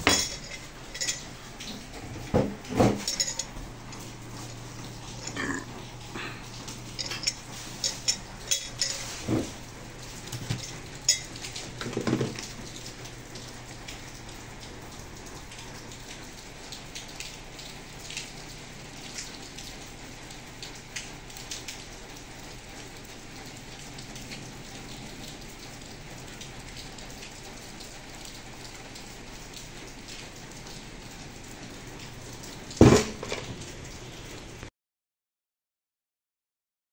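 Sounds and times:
shoe and tools knocking on workbench: 2.3s - 3.0s, 32.8s - 33.4s.

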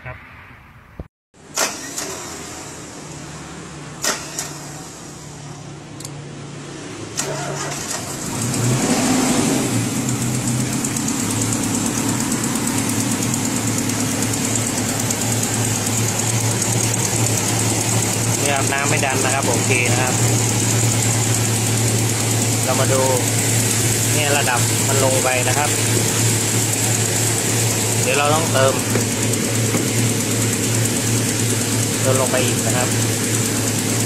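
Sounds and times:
car engine idling: 9.5s - 34.0s.

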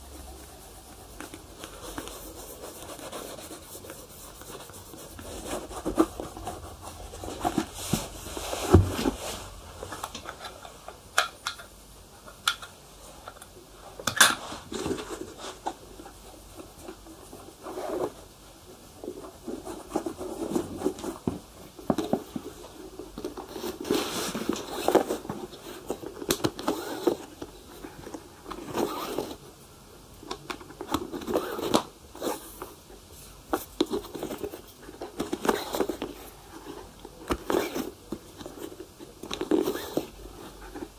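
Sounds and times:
rubbing strokes on shoe leather: 0.0s - 9.6s.

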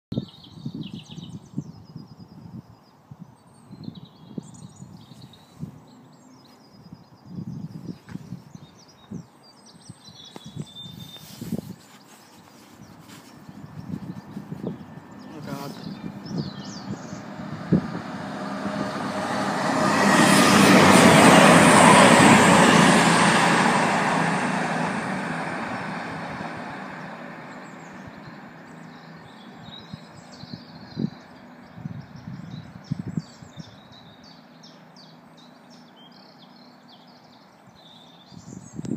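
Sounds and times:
birds chirping: 2.8s - 23.4s, 27.0s - 38.9s
diesel train passing: 12.2s - 38.9s.

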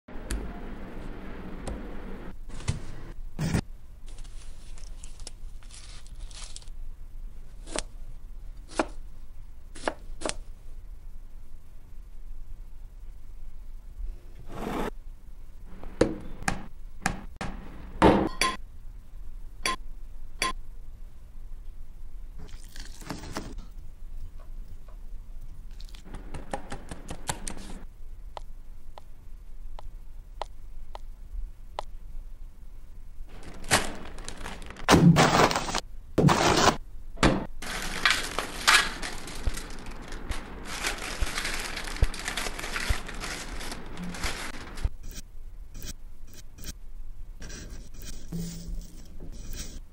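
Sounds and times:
potato chips crushed crackling: 4.8s - 6.8s, 33.3s - 35.8s, 37.6s - 44.9s.

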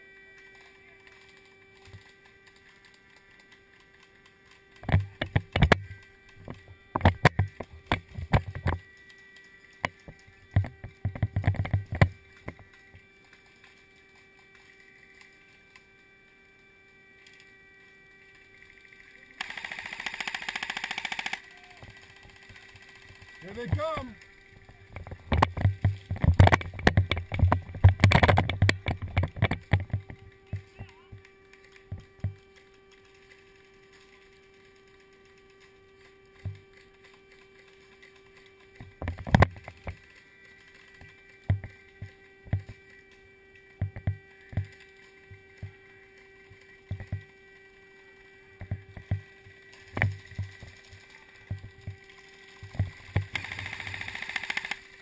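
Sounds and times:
faint hum: 0.0s - 55.0s
airsoft gunfire: 19.4s - 22.6s, 53.3s - 54.9s.

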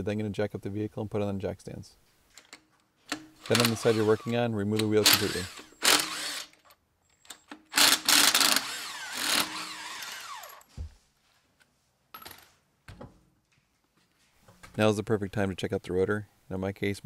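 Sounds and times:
impact wrench whining: 3.1s - 10.7s.

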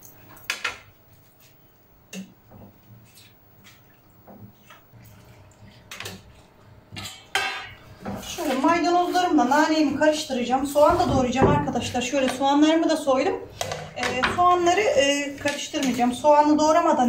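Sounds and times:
kitchen utensils tapping and clinking: 13.5s - 14.8s, 15.4s - 16.2s.

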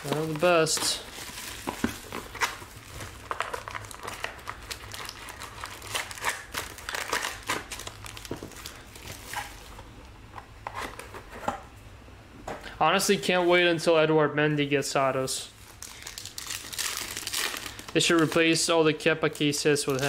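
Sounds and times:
foil wrappers crinkling and tearing: 0.0s - 9.7s, 15.6s - 18.8s, 19.4s - 20.0s.

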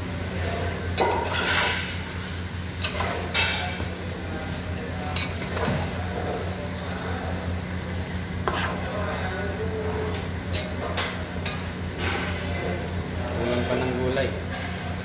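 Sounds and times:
metal spoon scraping pot: 8.4s - 8.8s.

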